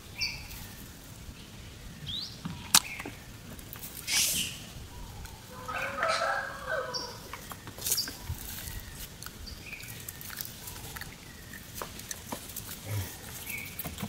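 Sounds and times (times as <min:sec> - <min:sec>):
animal call: 0:04.1 - 0:09.2.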